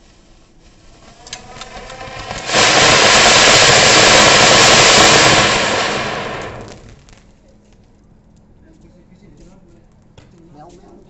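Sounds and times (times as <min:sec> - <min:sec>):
firework fountain hissing and crackling: 0:00.0 - 0:07.4.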